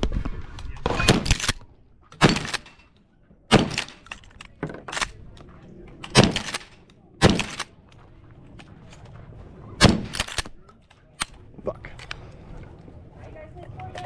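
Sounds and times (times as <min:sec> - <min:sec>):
shotgun shots: 0:00.8 - 0:01.6, 0:02.2 - 0:02.8, 0:03.5 - 0:04.1, 0:06.0 - 0:07.7, 0:09.8 - 0:10.6.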